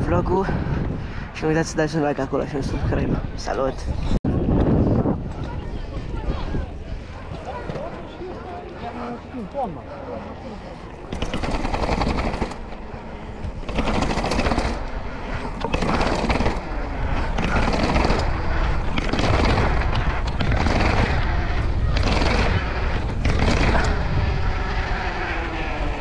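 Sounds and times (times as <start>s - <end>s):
wind on microphone: 0.0s - 7.8s, 11.1s - 26.0s
bicycle rattling over paving: 10.3s - 26.0s.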